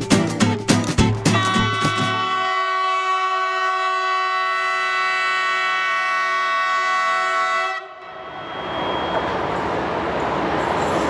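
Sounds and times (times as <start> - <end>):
locomotive air horn blast: 1.2 - 8.1.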